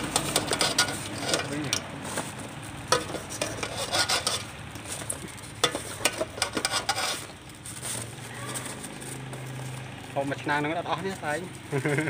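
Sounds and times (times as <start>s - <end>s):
metal skimmer scraping pot: 0.0s - 7.5s.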